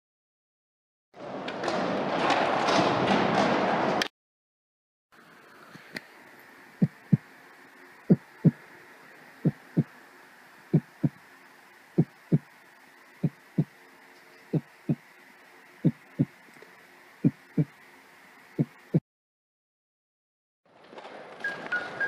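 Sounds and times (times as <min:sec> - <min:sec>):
faint steady hiss: 0:05.2 - 0:19.0
heartbeat thumps: 0:06.8 - 0:07.3, 0:08.1 - 0:08.6, 0:09.4 - 0:09.9, 0:10.7 - 0:11.2, 0:12.0 - 0:12.5, 0:13.2 - 0:13.7, 0:14.5 - 0:15.0, 0:15.8 - 0:16.4, 0:17.2 - 0:17.8, 0:18.6 - 0:19.0.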